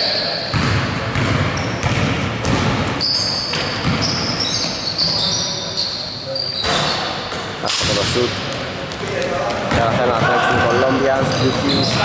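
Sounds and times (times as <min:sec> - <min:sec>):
sneakers squeaking on floor: 0:00.0 - 0:12.0
basketball bouncing on wooden floor: 0:00.5 - 0:04.3.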